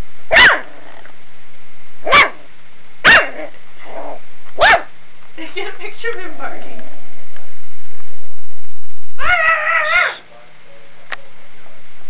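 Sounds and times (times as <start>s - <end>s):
puppy barking: 0.3s - 0.8s, 2.1s - 2.4s, 3.0s - 3.5s, 4.6s - 4.9s, 9.2s - 10.2s.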